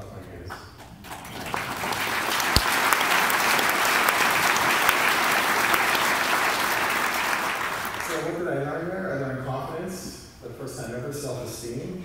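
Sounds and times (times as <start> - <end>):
audience applauding: 1.0 - 8.3.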